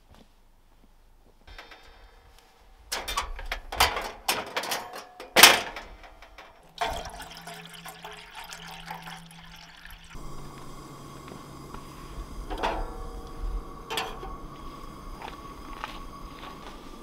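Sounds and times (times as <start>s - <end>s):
gas stove rushing noise: 1.5s - 17.0s
camp stove clicks and clanks: 2.9s - 8.1s, 12.4s - 16.8s.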